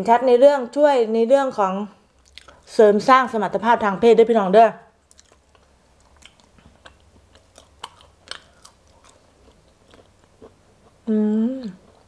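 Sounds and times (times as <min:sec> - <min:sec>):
person chewing quietly: 0:02.1 - 0:02.7, 0:05.0 - 0:12.0.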